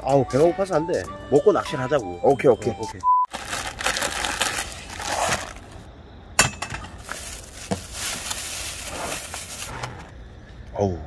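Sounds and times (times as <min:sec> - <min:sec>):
plastic bags crinkling: 0:03.3 - 0:05.8, 0:06.8 - 0:09.8.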